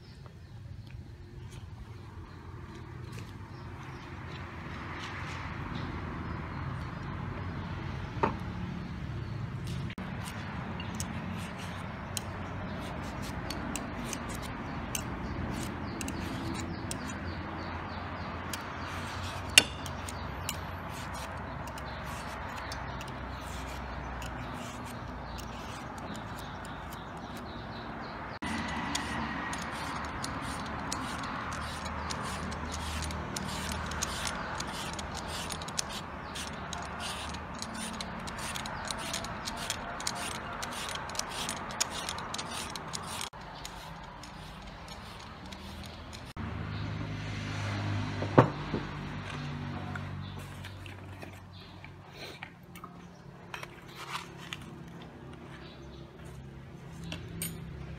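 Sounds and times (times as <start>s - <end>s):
peeler scraping mango: 9.5s - 46.5s.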